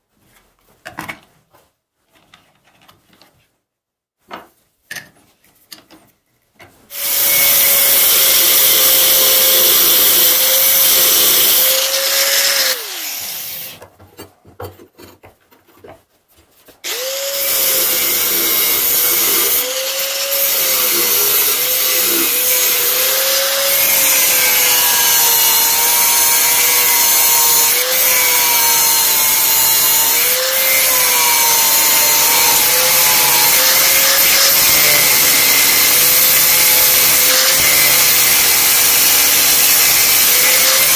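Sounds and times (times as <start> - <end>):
angle grinder cutting metal: 6.9 - 13.8, 16.8 - 40.9.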